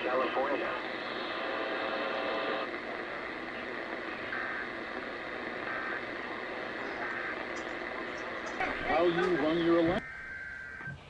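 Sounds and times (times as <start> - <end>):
radio receiver hiss: 0.0 - 11.0.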